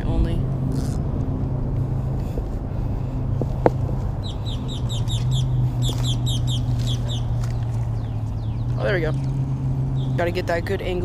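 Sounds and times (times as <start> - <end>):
steady low rumble: 0.0 - 11.0
bird chirping high: 4.1 - 10.2.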